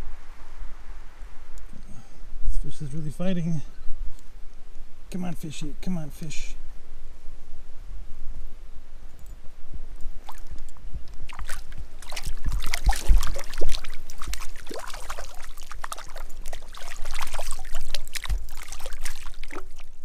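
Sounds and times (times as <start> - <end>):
water splashing from thrashing fish: 11.3 - 20.0.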